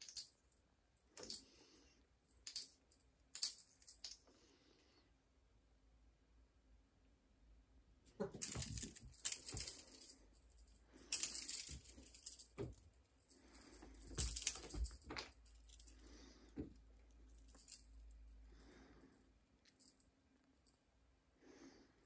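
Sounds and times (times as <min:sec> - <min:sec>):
toy bell jingling: 0:08.2 - 0:12.8, 0:13.4 - 0:16.0.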